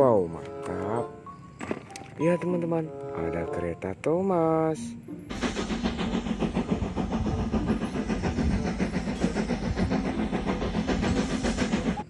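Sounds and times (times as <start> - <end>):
steam locomotive exhaust chuffing: 5.3 - 12.0.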